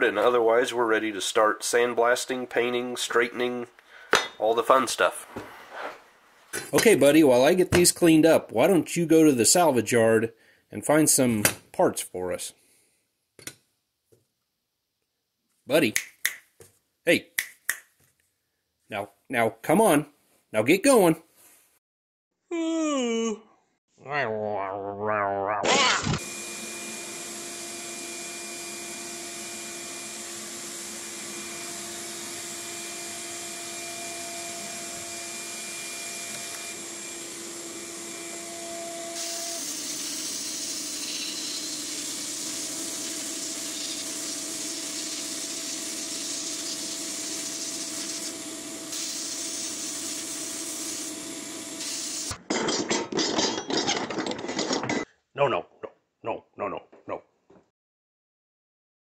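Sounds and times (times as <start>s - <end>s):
sandblast gun hissing: 39.2s - 52.4s.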